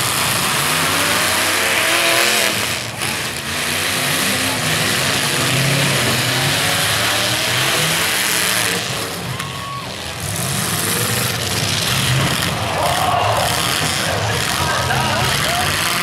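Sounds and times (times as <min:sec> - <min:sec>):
truck engines revving: 0:00.0 - 0:16.0.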